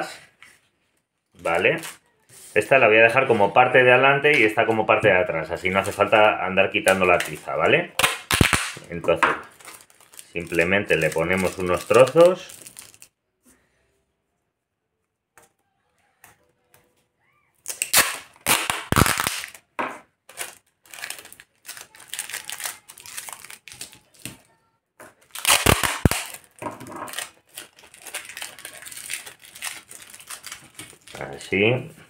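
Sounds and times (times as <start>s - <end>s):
tape and cardstock rustling: 4.2s - 13.1s, 17.6s - 24.5s, 25.1s - 31.4s
sticky tape ripping off roll: 8.0s - 8.8s, 17.6s - 19.7s, 25.2s - 31.2s.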